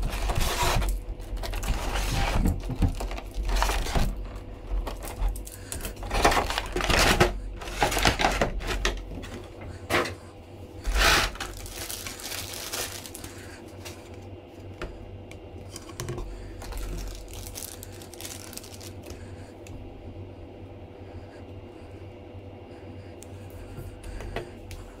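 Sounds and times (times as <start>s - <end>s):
plastic packaging crinkling: 0.0s - 9.0s, 10.9s - 14.2s, 15.7s - 19.2s.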